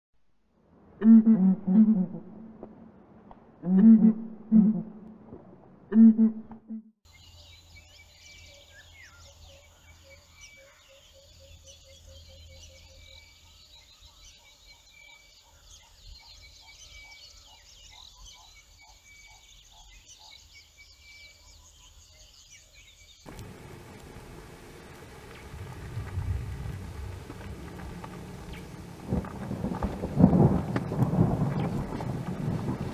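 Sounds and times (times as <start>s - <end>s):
low steady hum: 23.3s - 30.5s.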